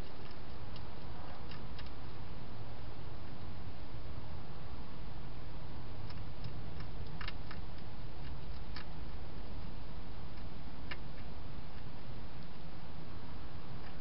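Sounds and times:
hedgehog crunching food: 0:00.0 - 0:02.0, 0:06.0 - 0:12.5
steady background hiss: 0:00.0 - 0:14.0.

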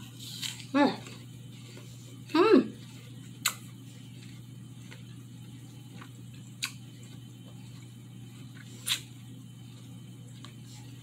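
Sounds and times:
steady low hum: 0:00.0 - 0:11.0
mouth clicks while eating: 0:03.4 - 0:03.6.

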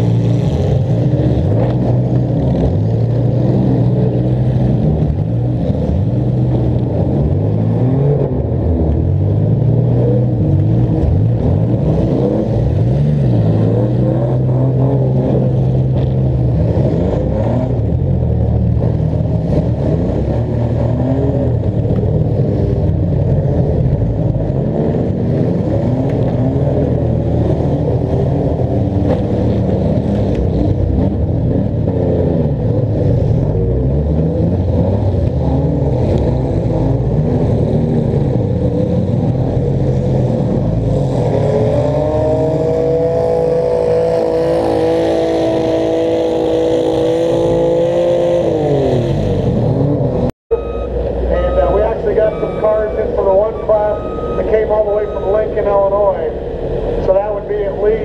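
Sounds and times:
car engines revving: 0:00.0 - 0:58.0
steady held multi-tone note: 0:50.5 - 0:56.4.

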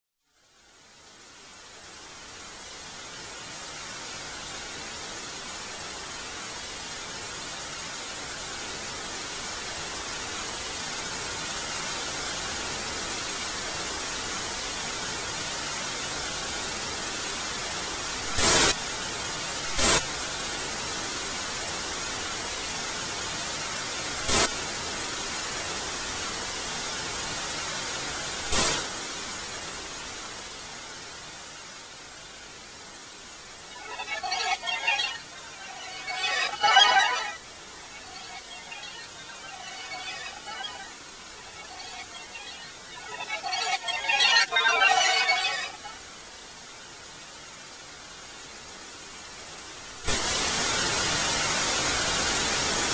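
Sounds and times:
static-like hiss: 0:00.1 - 0:52.9
thin high-pitched whine: 0:33.6 - 0:46.1.

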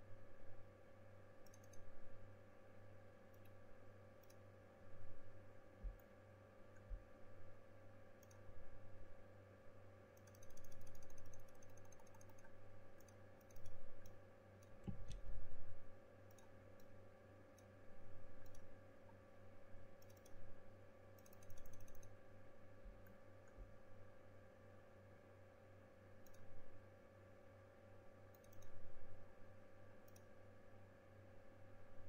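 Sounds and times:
low electrical hum: 0:00.0 - 0:32.0
mouse and keyboard clicking: 0:01.4 - 0:01.9, 0:10.2 - 0:15.2, 0:18.4 - 0:18.7, 0:20.0 - 0:20.4, 0:21.2 - 0:22.2, 0:28.3 - 0:28.7.

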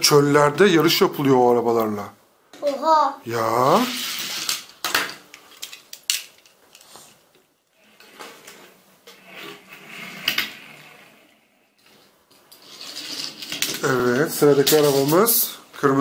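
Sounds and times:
metal toy cars clinking: 0:03.9 - 0:06.8, 0:12.5 - 0:15.5.

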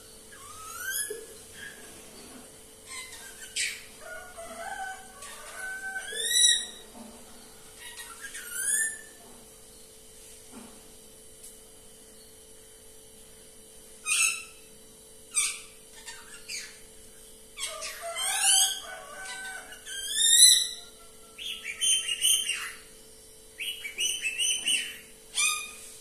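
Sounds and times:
parakeet screeching and squawking: 0:00.4 - 0:01.8, 0:02.9 - 0:06.8, 0:07.8 - 0:09.1, 0:15.3 - 0:16.8, 0:17.6 - 0:22.8, 0:24.4 - 0:25.8.

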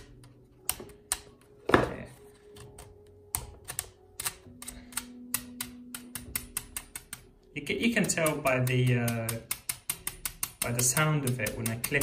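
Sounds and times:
fingers tapping hair dryer: 0:05.2 - 0:12.0.

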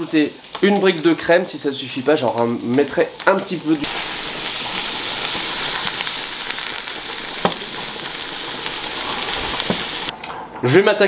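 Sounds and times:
food sizzling in frying pan: 0:00.0 - 0:10.1.

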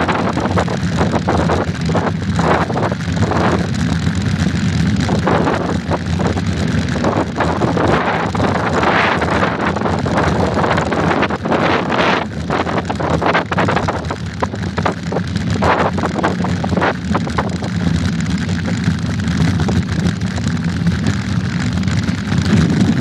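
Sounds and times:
tyres rumbling on dirt: 0:00.0 - 0:23.0
wind buffeting microphone: 0:22.2 - 0:23.0.

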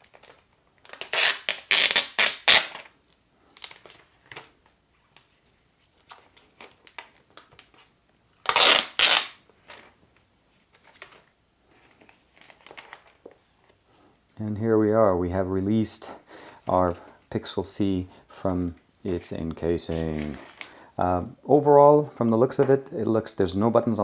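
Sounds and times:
plastic wrap crinkling: 0:00.0 - 0:10.0, 0:19.8 - 0:20.8.

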